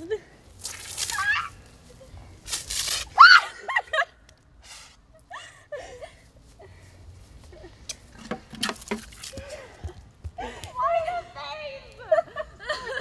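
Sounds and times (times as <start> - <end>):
girls shrieking and squealing: 1.1 - 1.7, 3.1 - 3.8.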